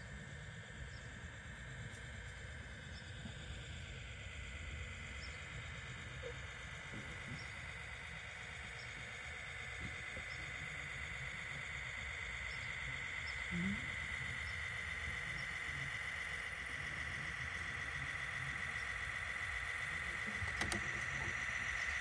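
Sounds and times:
toy electric motor whining: 0:12.0 - 0:22.0.

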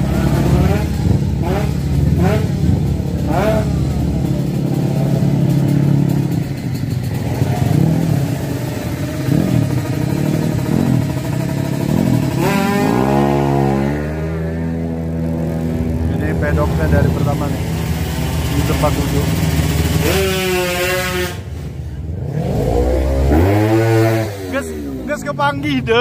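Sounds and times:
motorcycle engines revving: 0:00.0 - 0:26.0.

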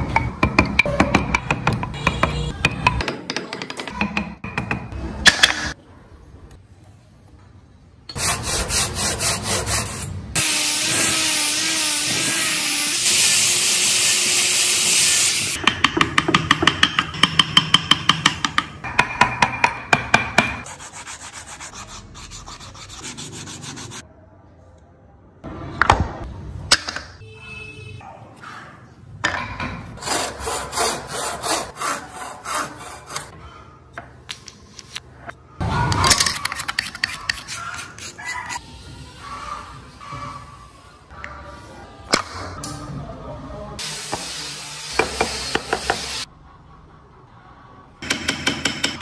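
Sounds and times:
sanding wood: 0:20.6 - 0:24.0.

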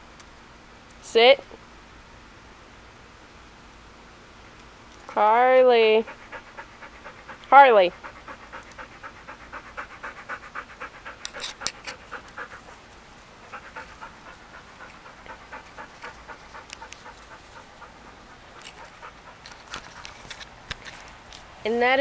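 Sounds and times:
dog panting rapidly: 0:05.1 - 0:20.4.

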